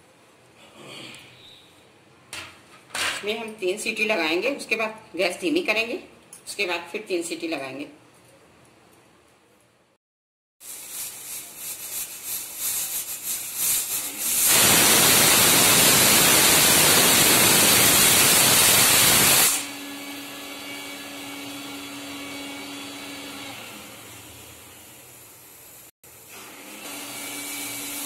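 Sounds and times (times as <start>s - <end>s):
pressure cooker whistle hissing steam: 13.5s - 20.1s.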